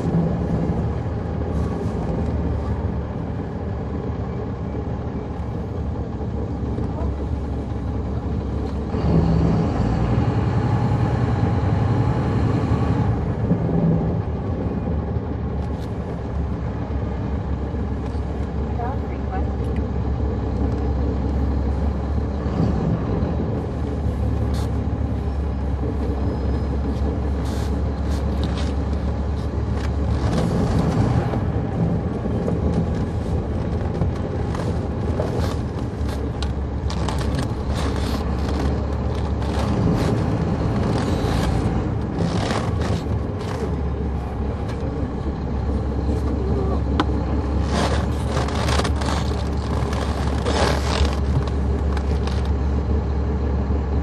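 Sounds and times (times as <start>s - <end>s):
bus diesel engine drone: 0.0s - 54.0s
knocks and rattles: 28.3s - 43.9s.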